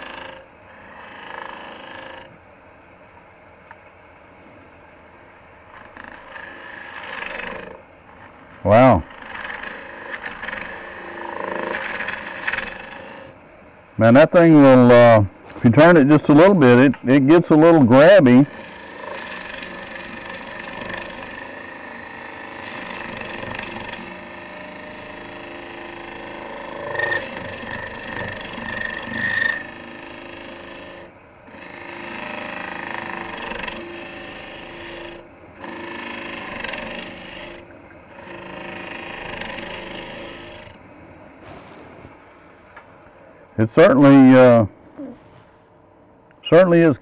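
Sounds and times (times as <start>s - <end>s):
tool shaving wood on lathe: 0.0s - 2.3s, 5.7s - 13.4s, 14.0s - 40.9s
lathe running hum: 0.0s - 3.0s, 3.6s - 41.4s.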